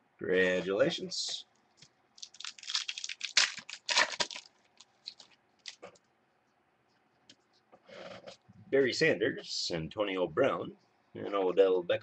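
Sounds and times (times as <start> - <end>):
cards and pack rustling: 2.2 - 6.0.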